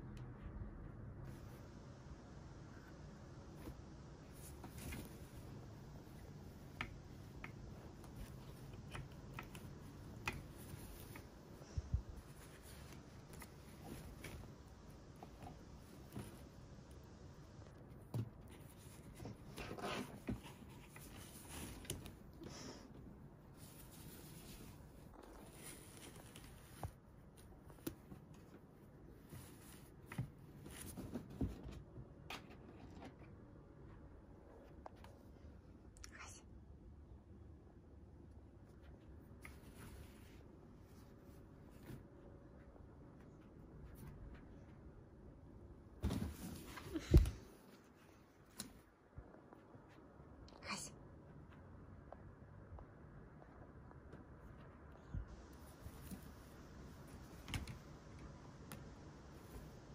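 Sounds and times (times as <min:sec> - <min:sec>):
laundry rustling: 0:02.7 - 0:33.2, 0:45.7 - 0:49.0.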